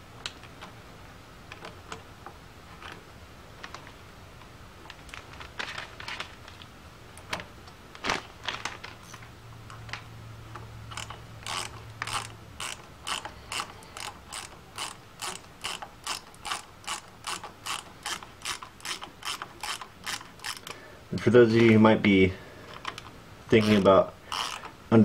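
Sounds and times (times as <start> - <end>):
hand ratchet clicking: 10.9 - 21.3, 22.7 - 24.8.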